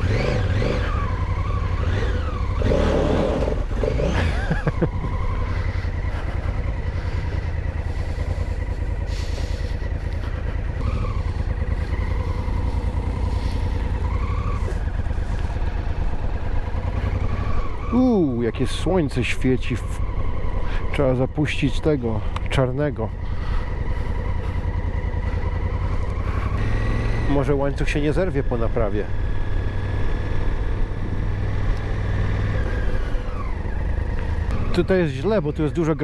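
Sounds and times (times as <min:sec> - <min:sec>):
motorcycle engine accelerating: 0:00.0 - 0:36.0.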